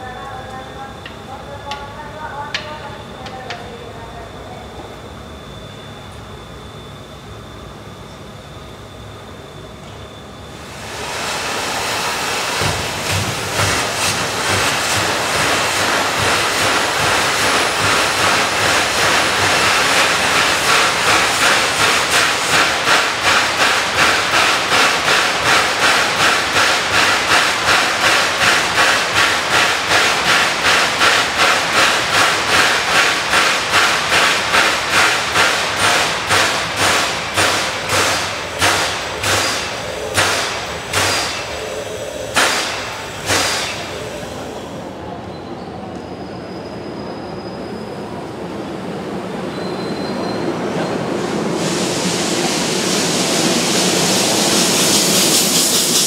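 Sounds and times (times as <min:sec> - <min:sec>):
steam hiss: 0:10.5 - 0:44.8, 0:51.2 - 0:56.0
pulsing steam pump beat: 0:10.6 - 0:44.6, 0:51.4 - 0:56.0.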